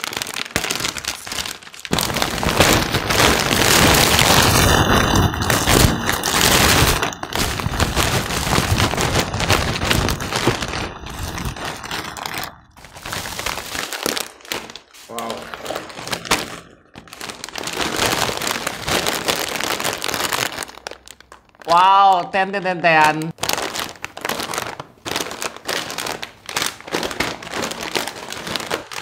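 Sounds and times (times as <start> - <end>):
plastic bags crinkling: 0.0 - 29.0.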